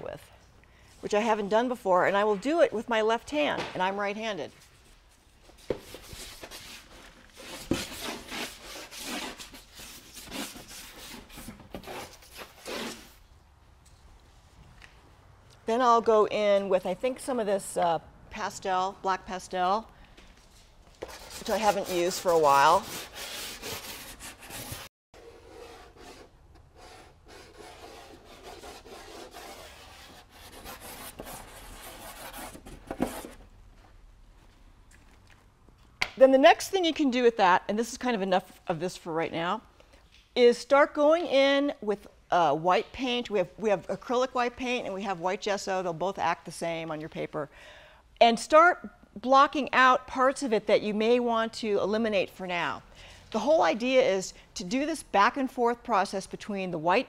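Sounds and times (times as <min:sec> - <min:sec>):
pastel scraping across paper: 0:05.8 - 0:13.2, 0:21.0 - 0:33.3.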